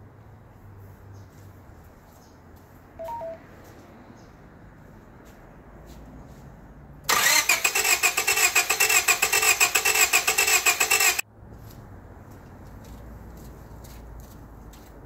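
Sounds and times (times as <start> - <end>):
starter motor cranking engine: 7.1 - 11.2.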